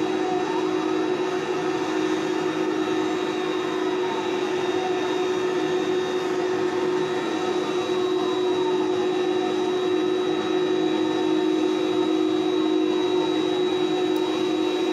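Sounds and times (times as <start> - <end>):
jet engines whining: 0.0 - 14.9.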